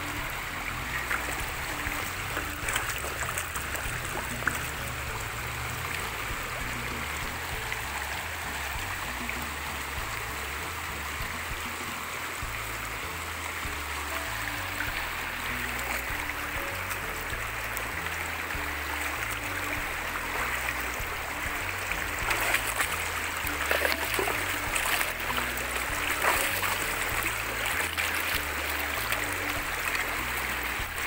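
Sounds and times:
stream rushing over rocks: 0.0 - 31.0.

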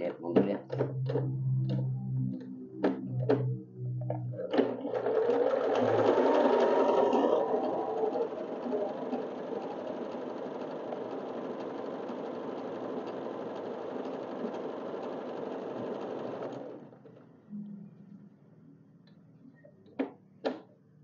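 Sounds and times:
sewing machine stitching fabric: 4.4 - 17.3.

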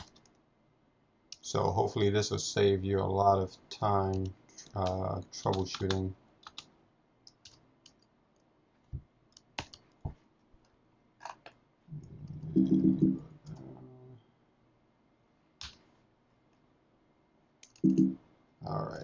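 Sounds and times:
keyboard keystrokes: 17.6 - 18.2.

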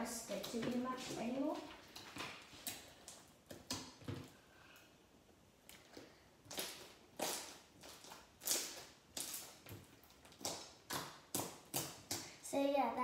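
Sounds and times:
hands slapping slime: 6.0 - 12.4.

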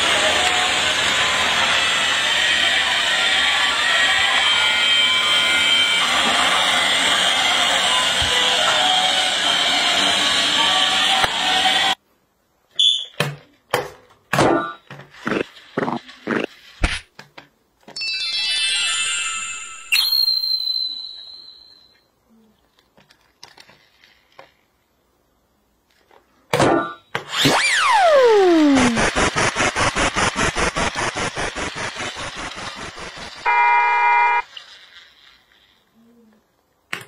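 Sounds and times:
sweep ending in ringing ding: 18.0 - 21.9
falling slide whistle: 27.3 - 29.3, 33.4 - 34.4.

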